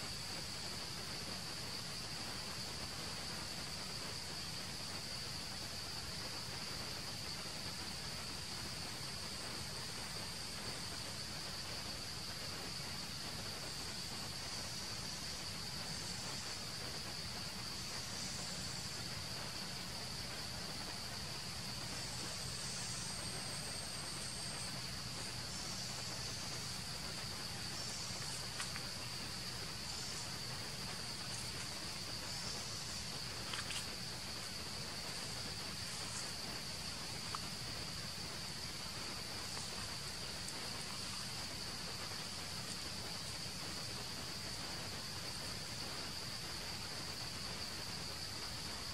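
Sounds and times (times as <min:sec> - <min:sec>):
forest insects droning: 0:00.0 - 0:48.9.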